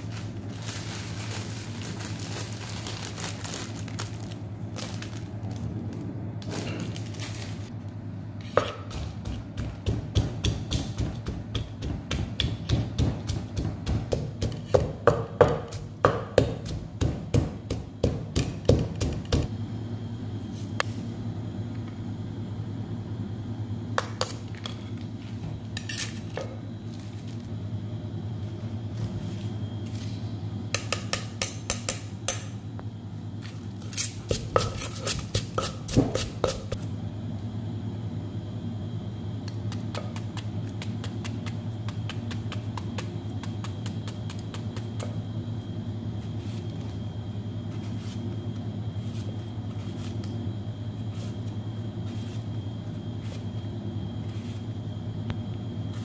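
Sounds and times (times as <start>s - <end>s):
steady low hum: 0.0s - 56.0s
wooden pestle knocking in mortar: 8.6s - 19.5s, 34.3s - 36.8s.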